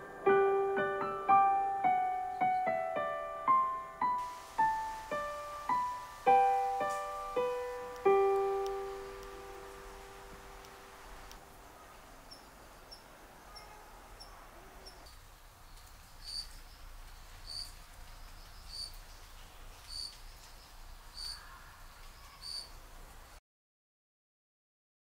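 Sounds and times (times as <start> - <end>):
crickets chirping: 4.1 - 19.0, 19.8 - 21.6, 22.3 - 22.8.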